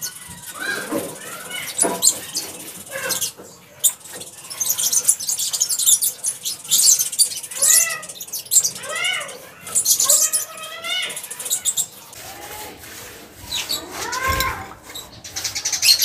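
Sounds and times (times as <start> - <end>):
paintbrush scrubbing concrete: 0.0 - 16.0
cat meowing: 8.8 - 9.4, 13.8 - 14.8.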